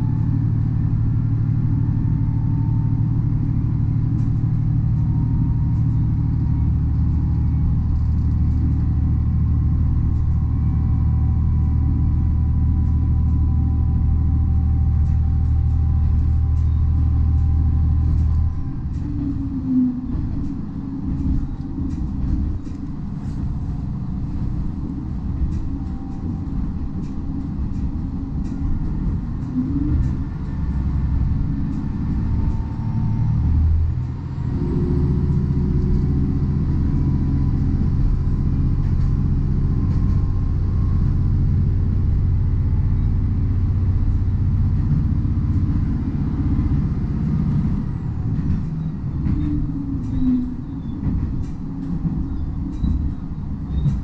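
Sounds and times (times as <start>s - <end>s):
railcar engine and wheels rumbling: 0.0s - 54.0s.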